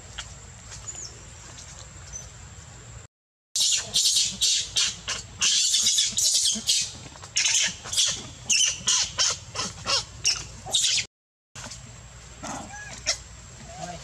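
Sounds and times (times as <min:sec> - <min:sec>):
monkey shrill squealing cries: 0:03.6 - 0:11.1.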